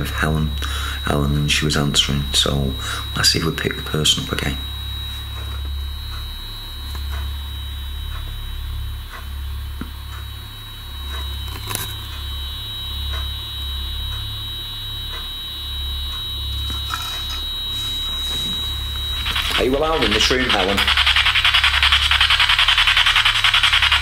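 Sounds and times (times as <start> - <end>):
low electrical hum cutting in and out: 0.0 - 24.0
steady high whine: 0.0 - 24.0.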